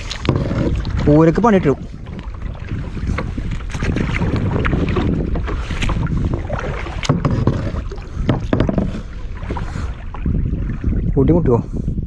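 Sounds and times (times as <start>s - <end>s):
wind rumbling on microphone: 0.0s - 12.0s
short knocks and clicks: 7.0s - 9.0s.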